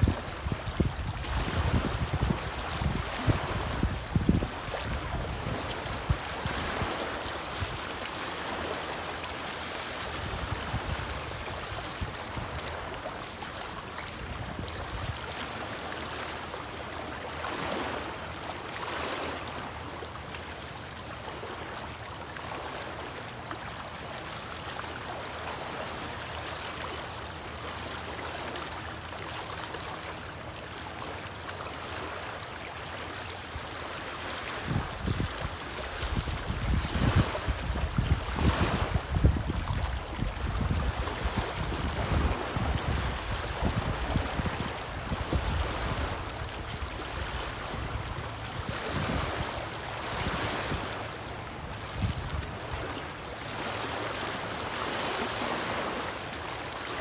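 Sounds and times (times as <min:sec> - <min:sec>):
wind buffeting microphone: 0:00.0 - 0:07.8, 0:34.6 - 0:50.9
waves lapping on rocky shore: 0:00.0 - 0:57.0.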